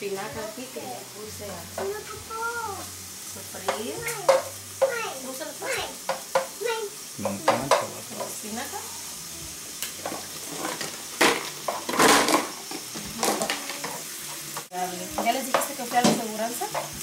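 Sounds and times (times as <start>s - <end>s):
spinach sizzling in skillet: 0.0s - 17.0s
spatula scraping and knocking pan: 3.6s - 5.0s, 6.0s - 6.6s, 7.2s - 8.5s, 9.9s - 17.0s.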